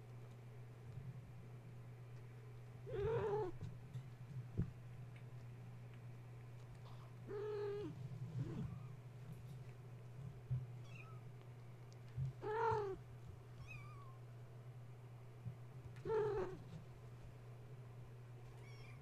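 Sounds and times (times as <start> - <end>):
steady low hum: 0.0 - 19.0
cats meowing: 2.9 - 3.6, 12.4 - 13.0, 16.0 - 16.6, 18.6 - 19.0.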